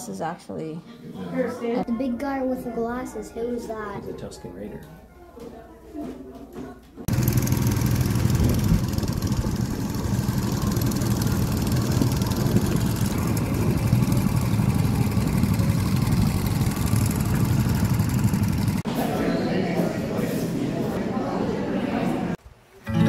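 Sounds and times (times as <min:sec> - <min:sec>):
go-kart engines running: 0:07.1 - 0:18.8.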